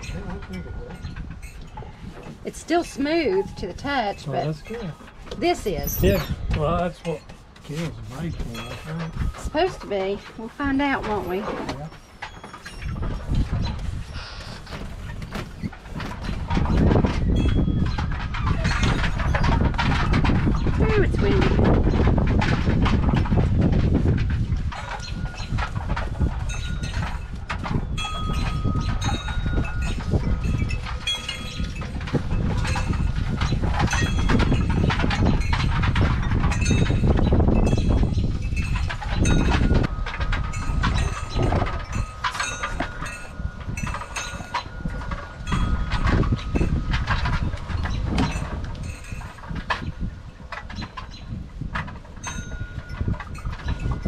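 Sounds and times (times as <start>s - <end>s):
wind rumbling on microphone: 0.0s - 54.0s
paintbrush stroking on wood: 7.1s - 11.8s.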